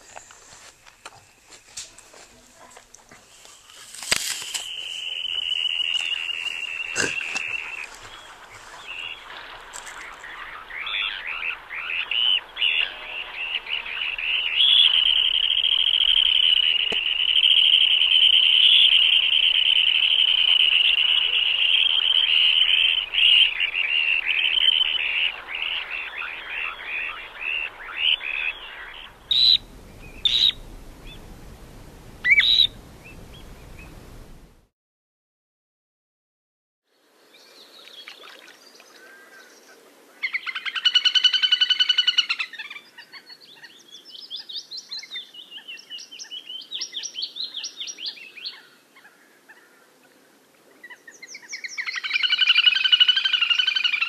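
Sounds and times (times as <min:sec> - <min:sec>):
birds calling: 0:03.3 - 0:34.6.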